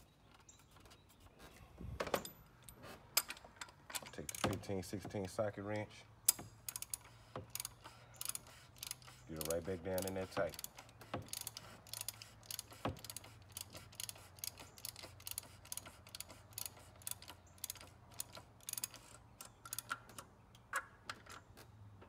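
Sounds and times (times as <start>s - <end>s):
ratchet wrench clicking: 3.2s - 4.7s, 5.3s - 20.2s.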